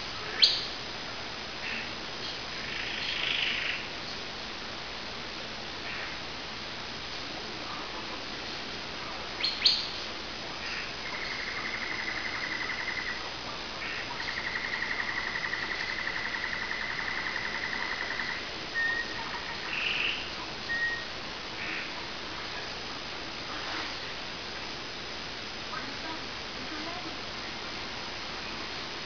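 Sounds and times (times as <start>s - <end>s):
canary singing: 11.0s - 13.2s, 13.9s - 21.1s.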